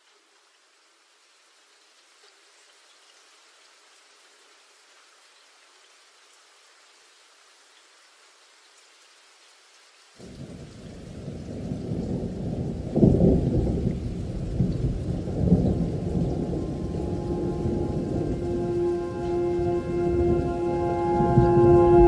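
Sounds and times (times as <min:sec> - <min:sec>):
faint hiss: 0:00.0 - 0:22.0
thunder rumbling: 0:10.3 - 0:22.0.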